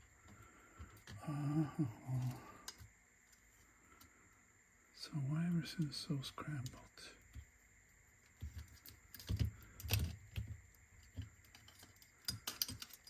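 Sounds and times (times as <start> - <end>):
light clicks of small parts: 2.1 - 4.1, 5.5 - 7.4, 8.4 - 13.0.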